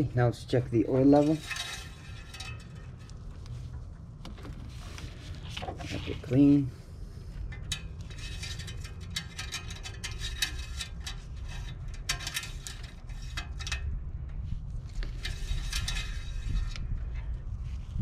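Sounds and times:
dipstick clicking and scraping in tube: 1.2 - 3.6, 7.5 - 13.9, 15.0 - 16.9.

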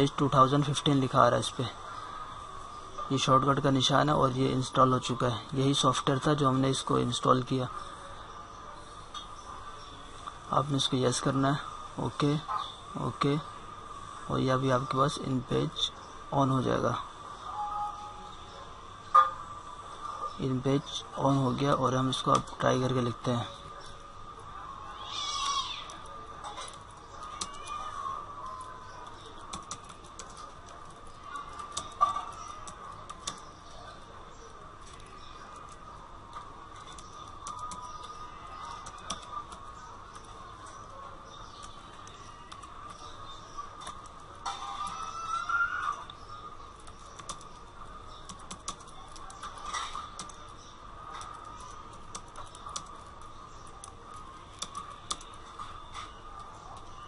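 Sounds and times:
faint steady hum: 0.0 - 57.0
computer keyboard typing: 21.5 - 23.2, 25.8 - 34.1, 34.8 - 57.0.

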